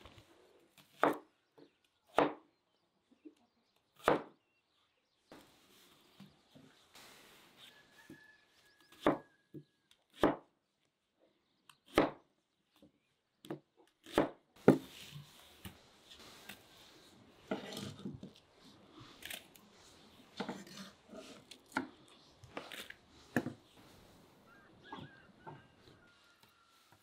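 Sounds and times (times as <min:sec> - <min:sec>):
knife cutting onion on wooden board: 0:08.8 - 0:09.3, 0:11.8 - 0:12.2, 0:13.4 - 0:15.2, 0:17.4 - 0:18.4, 0:20.3 - 0:23.6.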